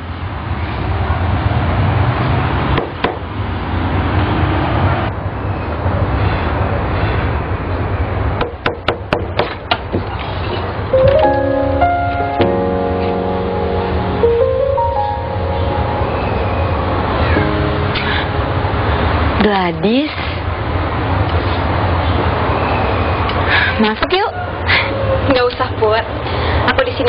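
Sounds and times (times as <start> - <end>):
piano music: 10.9 - 21.2.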